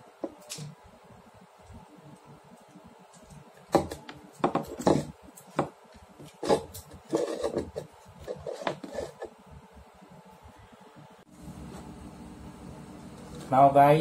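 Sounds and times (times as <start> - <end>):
knocks and scrapes on tabletop: 3.7 - 9.4.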